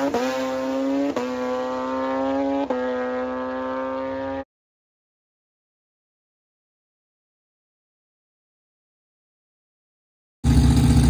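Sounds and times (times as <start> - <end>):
race truck engine revving high: 0.0 - 4.4.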